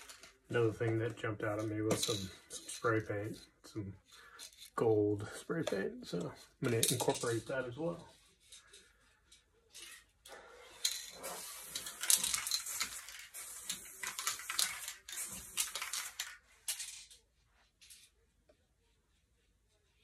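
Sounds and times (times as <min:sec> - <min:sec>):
spray paint can hissing: 0:11.1 - 0:16.2.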